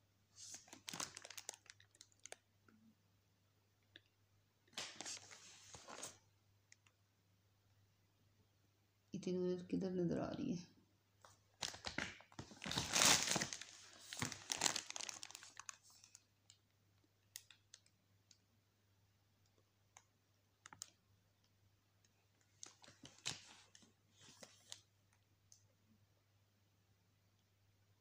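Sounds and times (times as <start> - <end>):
plastic wrapping crinkling: 0.4 - 2.4, 4.8 - 6.2, 11.2 - 17.9, 22.4 - 24.9.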